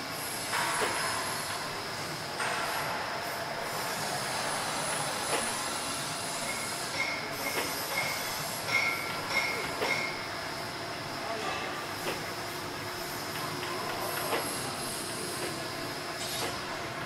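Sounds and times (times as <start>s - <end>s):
steam hiss: 0.0s - 16.8s
sharp metallic knocks: 6.5s - 10.2s.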